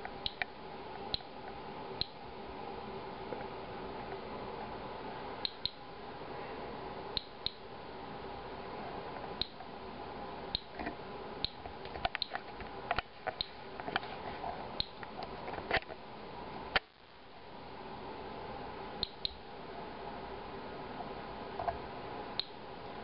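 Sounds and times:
geiger counter clicking: 0:00.0 - 0:00.5, 0:01.1 - 0:01.3, 0:05.4 - 0:05.8, 0:07.2 - 0:07.6, 0:10.6 - 0:12.4, 0:19.0 - 0:19.4, 0:22.4 - 0:22.6
faint steady hum: 0:00.0 - 0:23.0.

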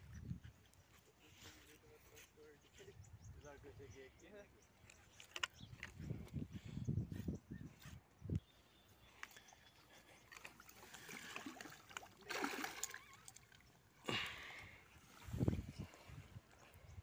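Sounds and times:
fish thrashing in water: 0:10.2 - 0:14.3.

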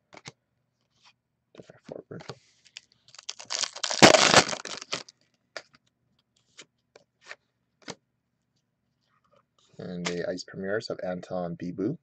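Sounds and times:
card packaging crinkling: 0:02.7 - 0:05.2.

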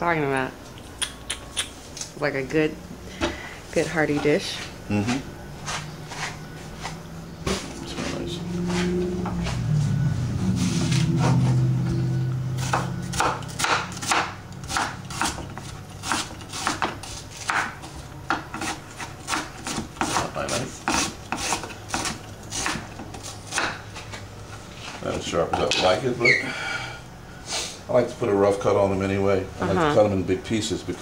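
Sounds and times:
low steady hum: 0:00.0 - 0:31.0
knife slicing onion on wooden board: 0:12.6 - 0:24.0.

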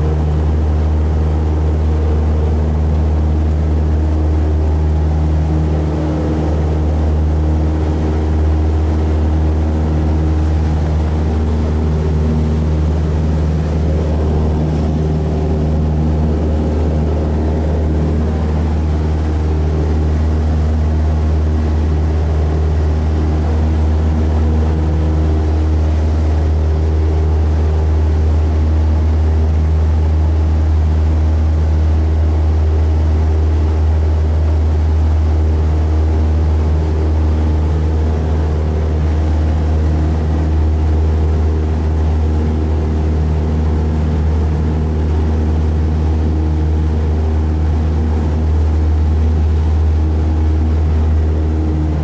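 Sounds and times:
propeller plane engine drone: 0:00.0 - 0:52.0.

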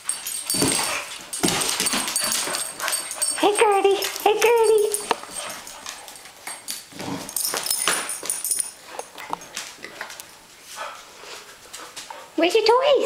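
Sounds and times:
toy rustling: 0:00.0 - 0:10.3
dog claws clicking on wooden floor: 0:00.1 - 0:10.3.

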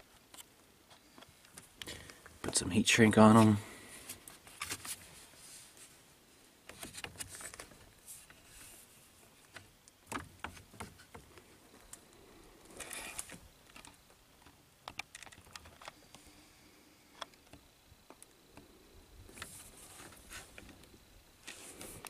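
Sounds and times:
cables rustling: 0:06.7 - 0:16.4.

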